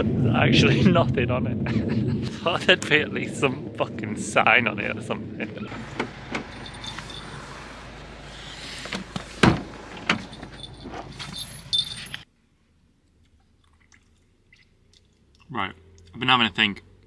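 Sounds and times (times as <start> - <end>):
door clunk: 5.7 - 7.1, 8.9 - 11.4
keys jangling: 6.4 - 7.5, 10.1 - 12.3.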